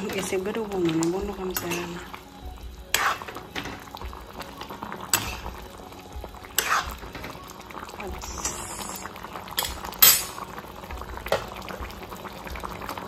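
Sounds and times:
soup bubbling: 0.0 - 13.0
metal ladle scraping a pot: 2.9 - 3.4, 6.6 - 7.0.

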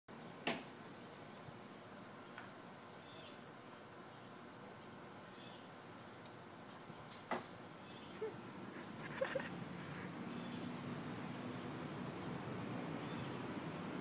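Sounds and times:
high-pitched insect drone: 7.8 - 13.8.

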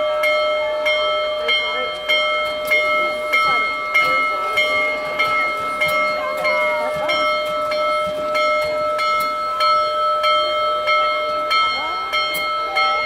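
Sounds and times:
steam locomotive bell ringing: 0.0 - 13.0.

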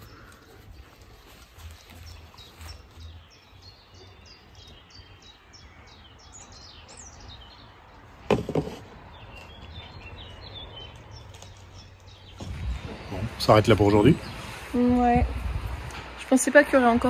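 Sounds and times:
songbird singing: 0.0 - 17.0
loud knock with clatter: 8.3 - 8.9.

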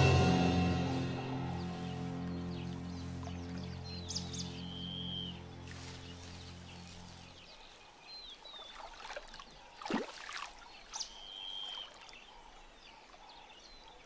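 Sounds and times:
sharp watery sound: 8.4 - 12.3.

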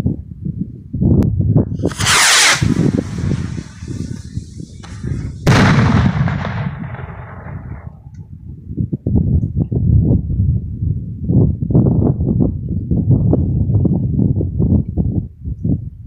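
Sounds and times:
steady low rumble: 1.2 - 13.2
firework rocket whoosh: 1.8 - 7.8
firework bang: 1.8 - 8.0.

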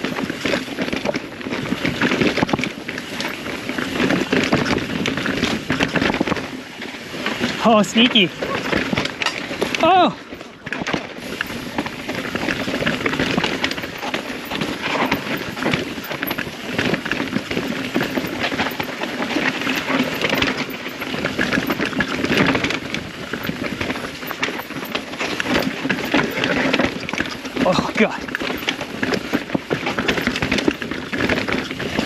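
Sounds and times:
bike chain and frame rattling: 0.0 - 32.0
bike tyres on dirt and rock: 0.0 - 32.0.

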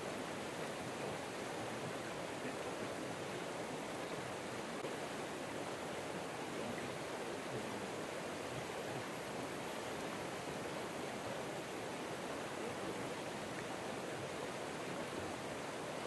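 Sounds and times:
river water rushing: 0.0 - 16.0.

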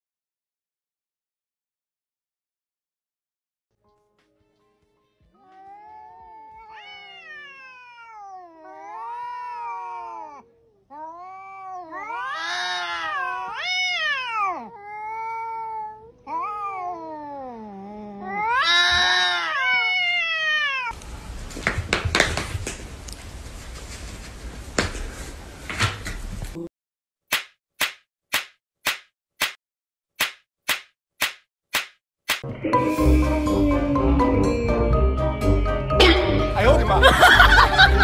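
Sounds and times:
cat yowling: 5.4 - 21.0.

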